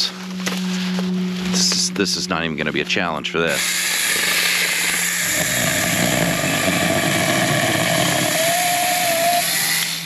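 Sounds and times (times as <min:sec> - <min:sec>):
electric chainsaw cutting log: 0:03.5 - 0:10.0.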